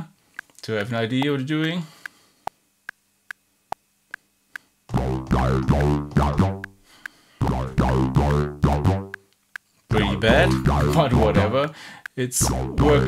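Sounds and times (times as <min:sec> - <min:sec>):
metronome clicking: 0:00.4 - 0:02.2, 0:04.1 - 0:13.0
synthesizer notes with swooping pitch: 0:04.9 - 0:06.8, 0:07.4 - 0:09.2, 0:09.9 - 0:11.7, 0:12.4 - 0:13.0.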